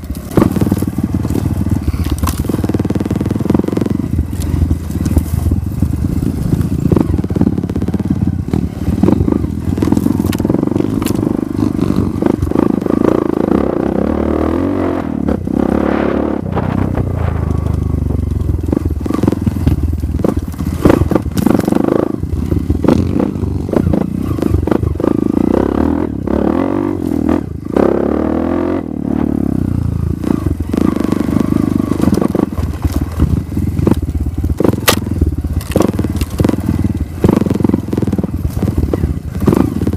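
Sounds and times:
bike rattling over rocks: 0:00.0 - 0:13.1, 0:16.6 - 0:25.1, 0:31.7 - 0:39.9
dirt bike engine revving: 0:00.0 - 0:39.9.

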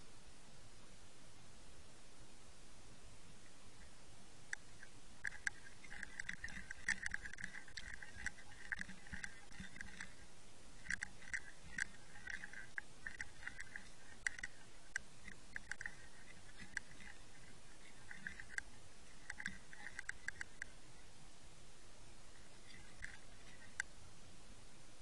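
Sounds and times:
rapid ticking bursts: 0:03.7 - 0:21.0, 0:22.3 - 0:23.9
underwater clicks and crackles: 0:04.5 - 0:20.8, 0:22.4 - 0:23.9.

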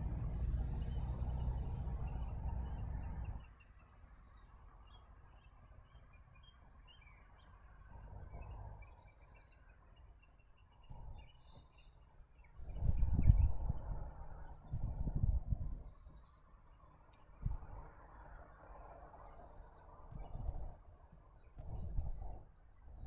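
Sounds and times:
low rumble: 0:00.0 - 0:03.5, 0:19.9 - 0:20.9
songbirds chirping and singing: 0:08.3 - 0:14.0, 0:18.7 - 0:22.4.

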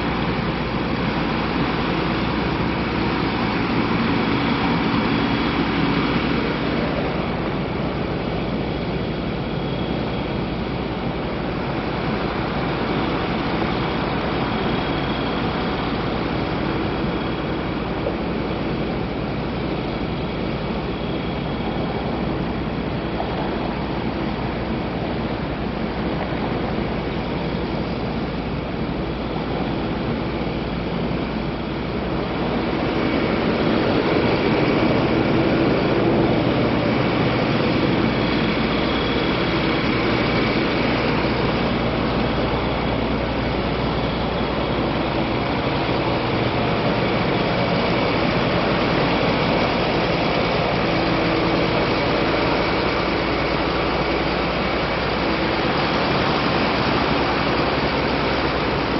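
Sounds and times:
city street noise: 0:00.0 - 0:58.9
low engine rumble: 0:00.0 - 0:58.9.

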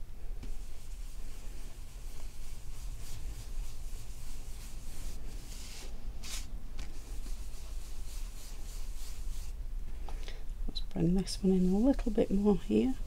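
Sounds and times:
brush scratching on card: 0:00.6 - 0:09.5.

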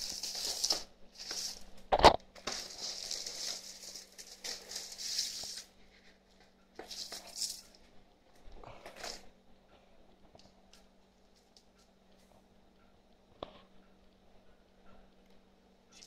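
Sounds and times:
plastic wrap rustling and crinkling: 0:00.0 - 0:07.8.

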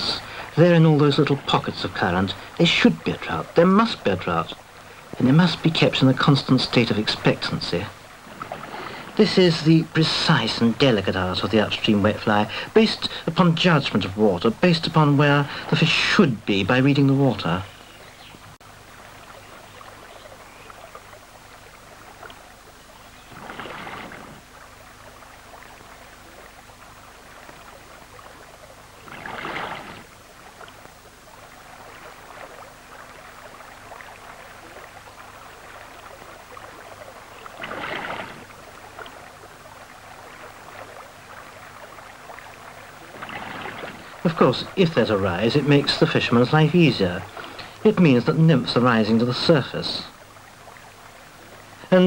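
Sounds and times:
faint steady hum: 0:00.0 - 0:52.0
water rushing over river rocks: 0:23.3 - 0:52.0.

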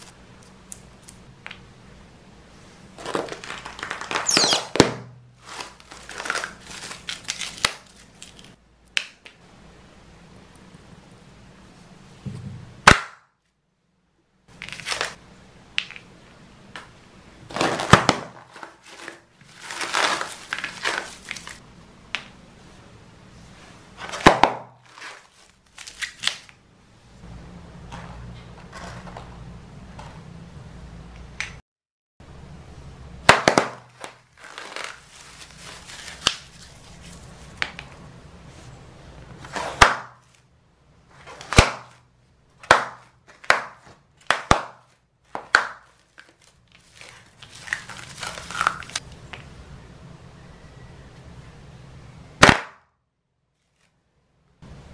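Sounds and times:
plastic film crinkling: 0:03.0 - 0:04.8, 0:05.4 - 0:08.6, 0:14.5 - 0:15.2, 0:17.5 - 0:21.6, 0:24.8 - 0:26.6, 0:33.4 - 0:37.7, 0:45.8 - 0:49.0
plastic balloons popping: 0:03.0 - 0:05.2, 0:12.3 - 0:13.3, 0:17.5 - 0:18.5, 0:24.1 - 0:24.9, 0:33.2 - 0:34.2, 0:41.4 - 0:42.0, 0:42.6 - 0:45.9, 0:52.4 - 0:52.9.

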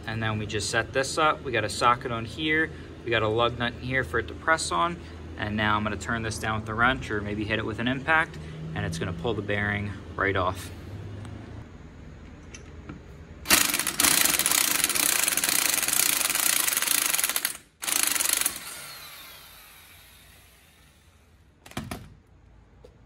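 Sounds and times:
electric impact wrench: 0:13.4 - 0:22.1.

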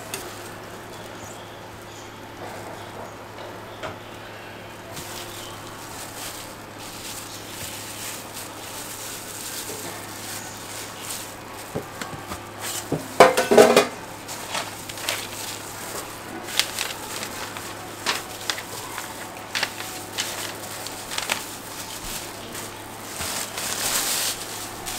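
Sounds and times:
paper bag rustling: 0:00.0 - 0:01.9, 0:04.7 - 0:24.9
steady low hum: 0:00.0 - 0:24.9
metal utensils on griddle: 0:12.6 - 0:19.1.

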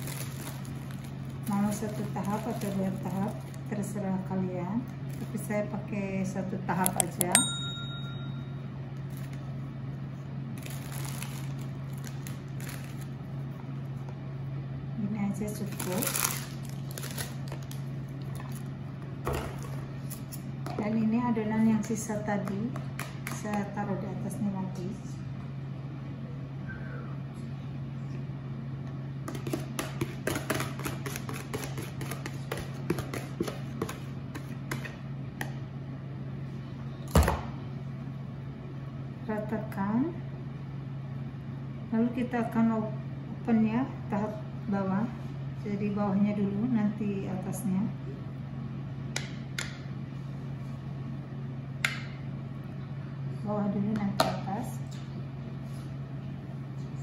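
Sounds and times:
biscuits rustling and crunching: 0:00.0 - 0:03.7, 0:10.5 - 0:14.0, 0:15.6 - 0:18.8
steady low hum: 0:00.0 - 0:57.0.

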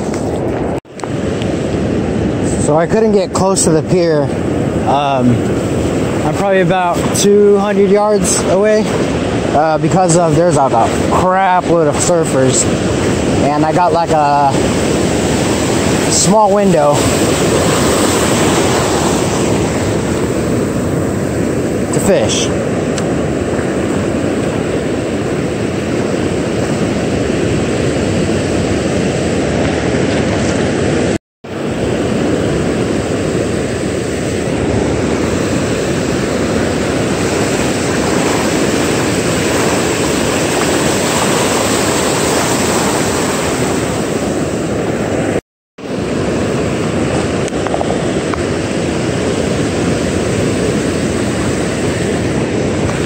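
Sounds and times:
ocean surf breaking: 0:00.0 - 0:53.0
wind noise on microphone: 0:00.0 - 0:53.0.

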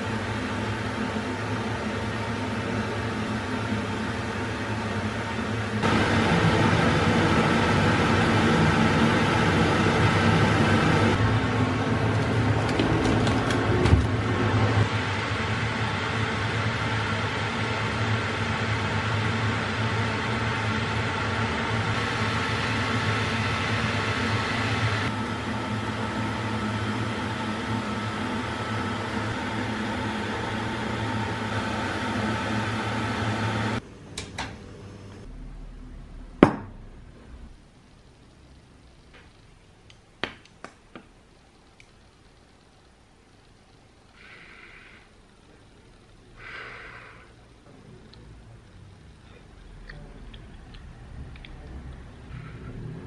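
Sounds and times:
kitchen appliance motor humming: 0:00.0 - 0:33.8.

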